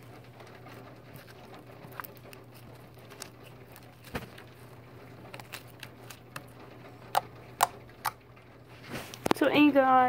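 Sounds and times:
steady low hum: 0.0s - 10.0s
slime squished by hand: 0.6s - 8.2s.

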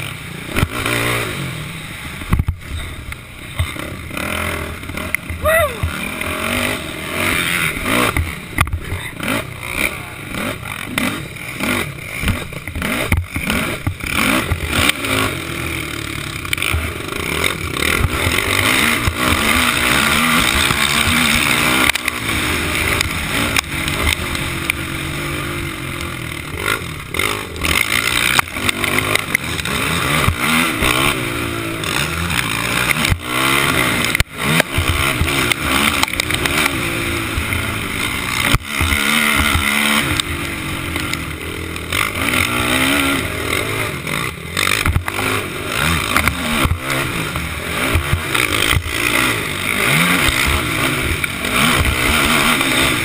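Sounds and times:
quad engine revving: 0.0s - 53.0s
knocks and clatter: 31.8s - 40.3s.

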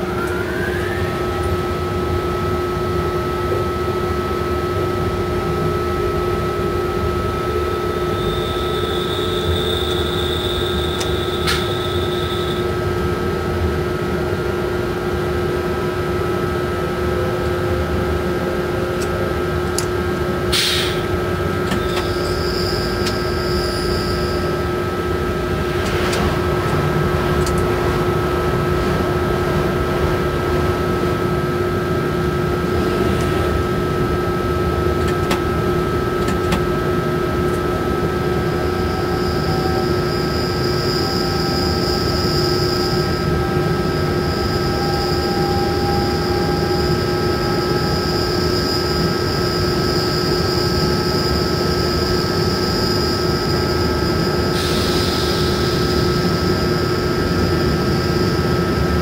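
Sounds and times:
constant whining tones: 0.0s - 20.5s
locomotive running rumble: 0.0s - 59.0s.

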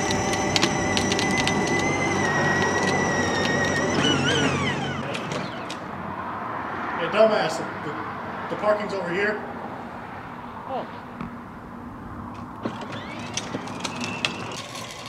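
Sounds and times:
toy car electric motor whining: 0.0s - 5.9s, 12.6s - 15.0s.

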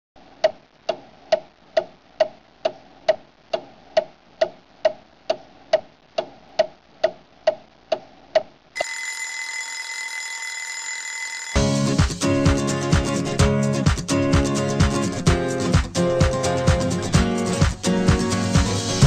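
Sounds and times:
clock ticking: 0.3s - 9.4s
alarm ringing: 8.8s - 11.8s.

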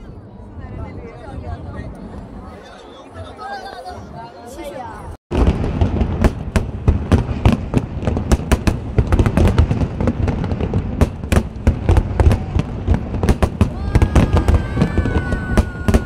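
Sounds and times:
fireworks cracks and booms: 5.3s - 16.0s.

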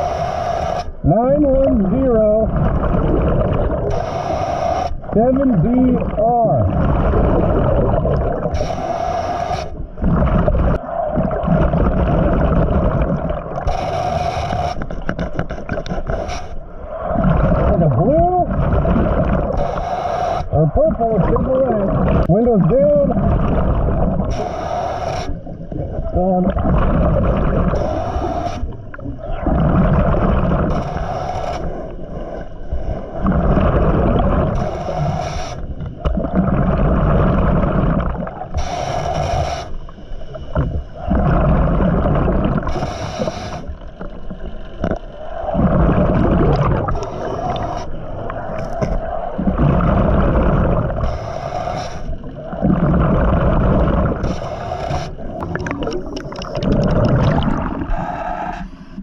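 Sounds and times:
regulator inhale hiss: 0.0s - 1.0s, 3.9s - 5.1s, 8.5s - 9.8s, 13.6s - 15.0s, 19.6s - 20.5s, 24.2s - 25.7s, 27.7s - 29.1s, 30.7s - 33.3s, 34.5s - 36.0s, 38.4s - 41.0s, 42.6s - 43.9s, 46.9s - 49.3s, 51.0s - 52.6s, 54.1s - 56.2s, 57.8s - 59.0s
exhaled bubbles rumbling: 0.0s - 59.0s.

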